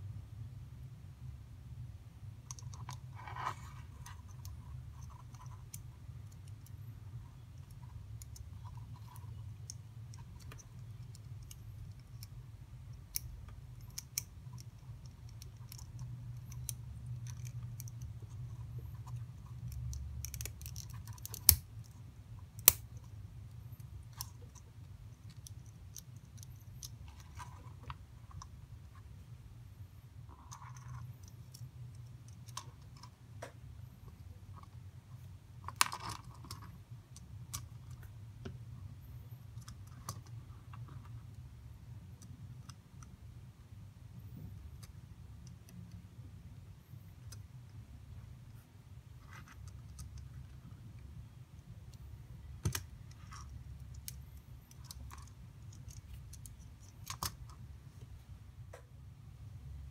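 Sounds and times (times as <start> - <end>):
plastic parts clicking: 13.1 - 22.0, 52.6 - 57.6.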